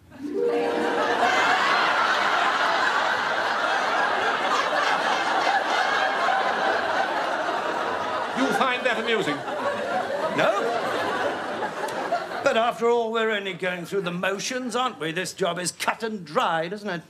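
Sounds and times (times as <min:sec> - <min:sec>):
studio audience laughing: 0:00.1 - 0:12.9.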